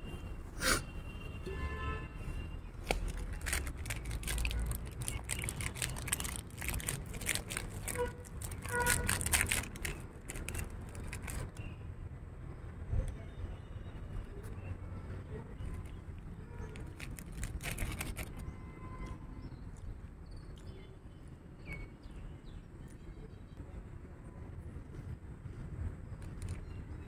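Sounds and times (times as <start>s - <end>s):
plastic packet crinkling: 2.8s - 11.6s, 16.7s - 18.4s, 26.2s - 26.7s.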